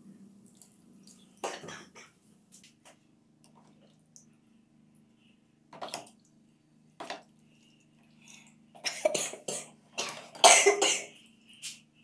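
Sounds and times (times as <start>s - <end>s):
water splashing and dripping: 0.4s - 1.9s.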